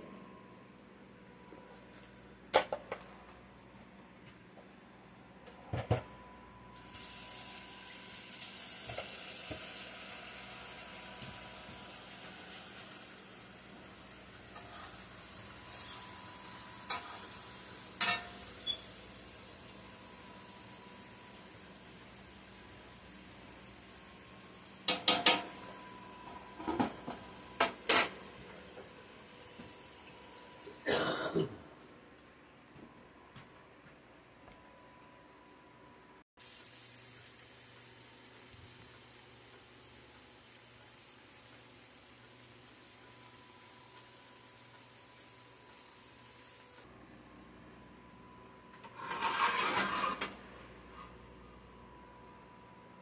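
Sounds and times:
food sizzling in a skillet: 6.8s - 24.1s, 36.4s - 46.8s, 49.0s - 50.2s
metal clanking on skillet: 16.8s - 17.3s, 18.0s - 18.8s, 24.9s - 25.6s.

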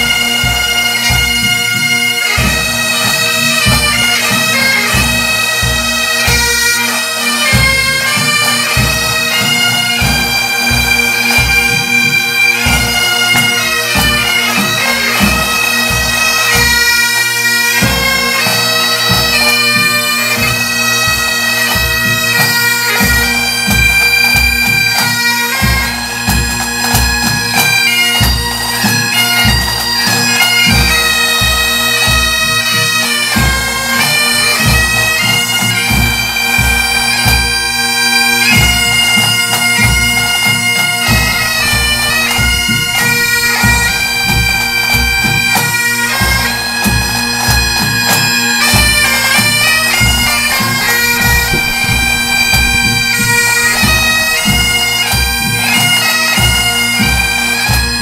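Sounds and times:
bagpipes playing melody: 0.0s - 58.0s
snare drums: 50.0s - 55.2s
bass drum beat: 51.1s - 53.0s.

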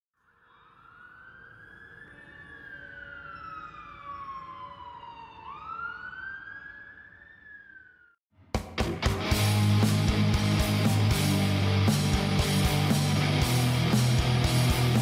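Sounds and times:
emergency siren wailing: 0.2s - 8.2s.

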